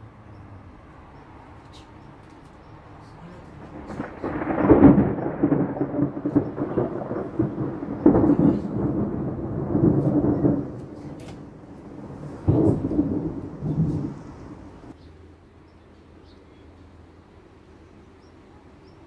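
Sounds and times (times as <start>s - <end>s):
thunder rumbling: 2.8s - 15.0s.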